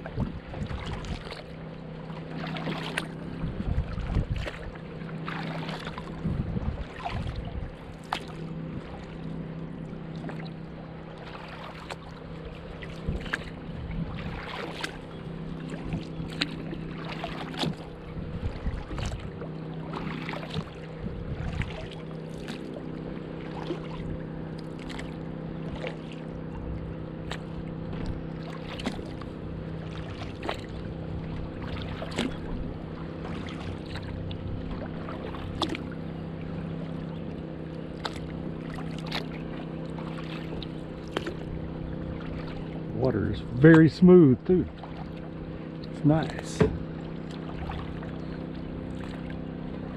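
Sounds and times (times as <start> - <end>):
paddle dipping and splashing: 0.0 - 49.9
steady low hum: 0.0 - 49.9.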